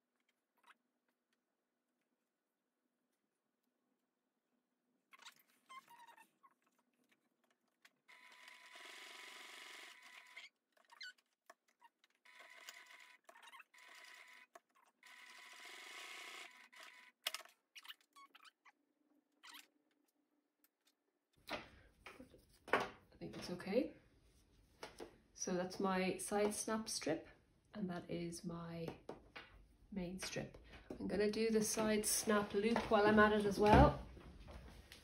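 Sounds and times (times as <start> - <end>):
sewing machine whirring: 8.0 - 11.0, 11.9 - 17.5.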